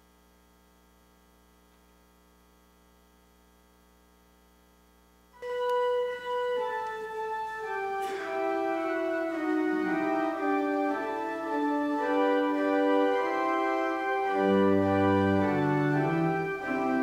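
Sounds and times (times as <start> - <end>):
faint electrical hum: 0.0 - 17.0
organ playing a hymn: 5.4 - 17.0.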